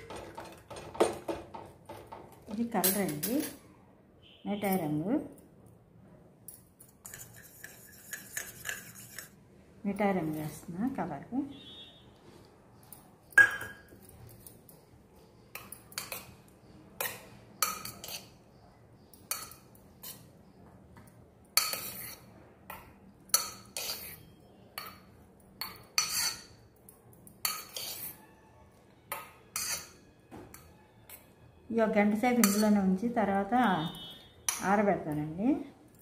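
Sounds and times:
spoon clinking against steel bowl: 6.5s - 9.4s, 13.3s - 14.7s, 15.5s - 20.3s, 21.5s - 28.3s, 29.1s - 31.4s, 32.1s - 34.9s.

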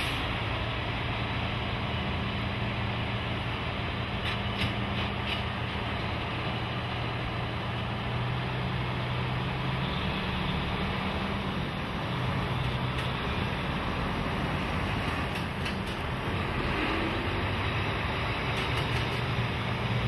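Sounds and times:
truck engine driving past: 4.8s - 20.0s.

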